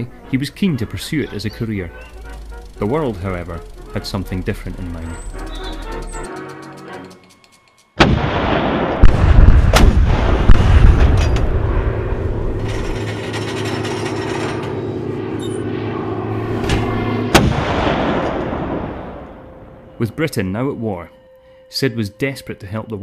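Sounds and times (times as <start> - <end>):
steady low drone: 0.0 - 7.2, 9.0 - 21.9
heavy guns firing: 8.0 - 14.6, 17.2 - 19.2
dense continuous rumble: 9.1 - 19.9.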